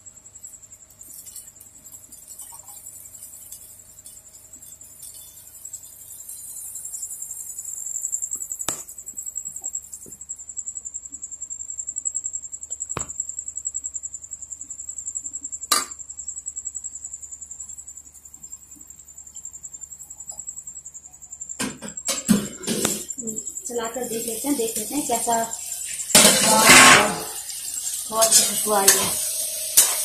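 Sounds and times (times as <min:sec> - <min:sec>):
high-pitched insect trill: 0:00.0 - 0:30.0.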